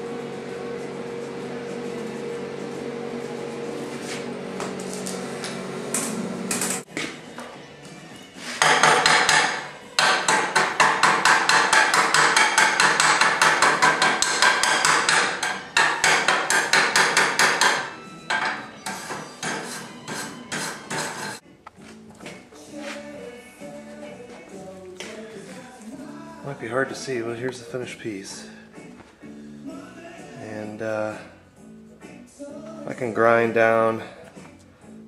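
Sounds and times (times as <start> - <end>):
steady hum: 0.0 - 6.9
hammer striking steel: 8.6 - 19.7.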